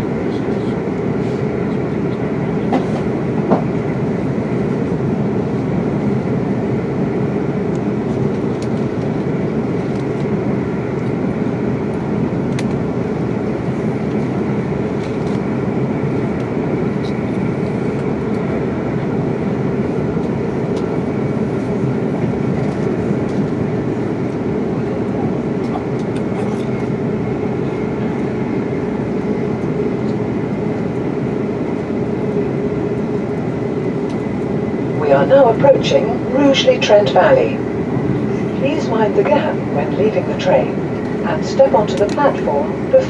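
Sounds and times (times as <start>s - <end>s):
train wheels rumbling on rails: 0.0s - 5.7s
light track clicks: 11.9s - 12.8s, 25.6s - 26.8s, 34.0s - 34.4s, 41.8s - 42.4s.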